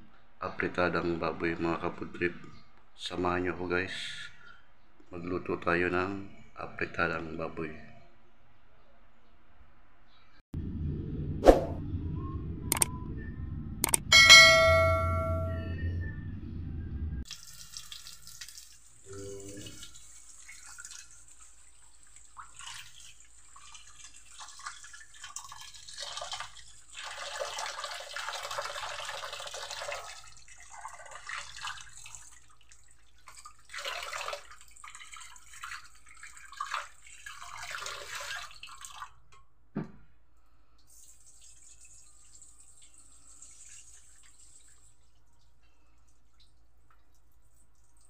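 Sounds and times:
water splashing in metal pot: 17.3s - 39.2s.

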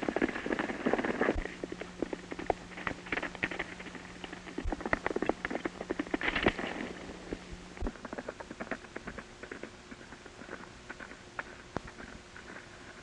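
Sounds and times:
horse hoofbeats galloping on dirt: 0.0s - 13.0s.

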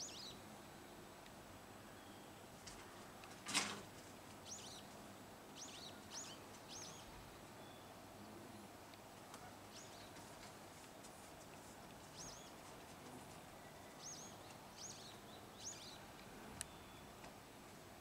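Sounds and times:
small bird chirping: 0.0s - 0.4s, 4.4s - 4.9s, 5.6s - 7.9s, 12.0s - 12.7s, 13.6s - 16.0s.

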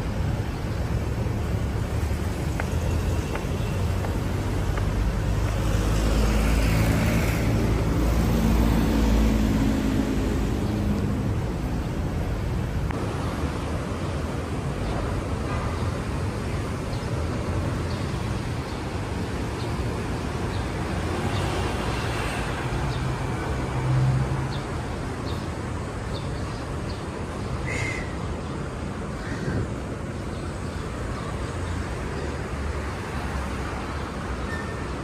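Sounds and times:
city traffic rumble: 0.0s - 35.0s
vehicle passing: 1.0s - 12.8s.

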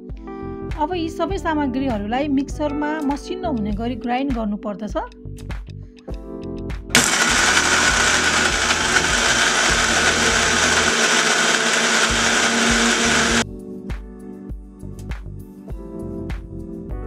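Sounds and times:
mixer grinder running: 7.0s - 13.4s.

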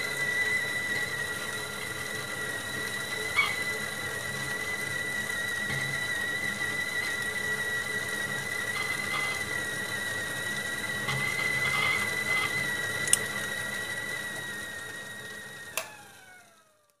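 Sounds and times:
kettle whistling: 0.0s - 17.0s.

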